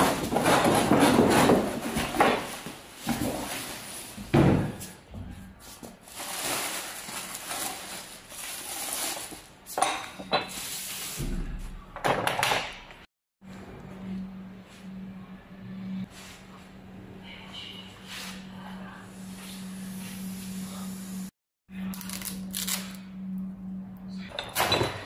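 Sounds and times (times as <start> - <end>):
plastic wrap crinkling: 6.0 - 9.5.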